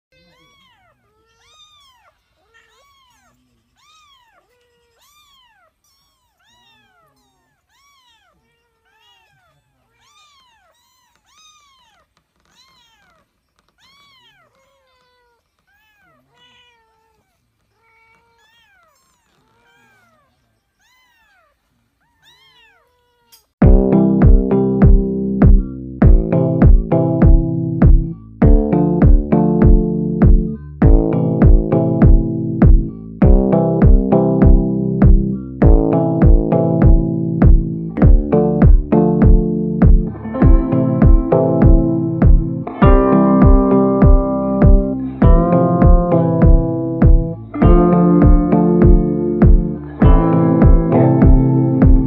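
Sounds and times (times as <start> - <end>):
cat meowing faintly: 0.1 - 23.6.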